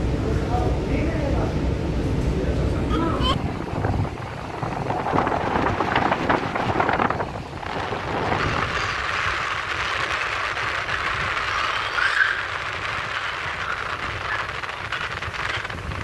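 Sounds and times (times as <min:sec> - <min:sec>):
wind buffeting microphone: 0:02.6 - 0:16.0
water rushing along hull: 0:03.2 - 0:16.0.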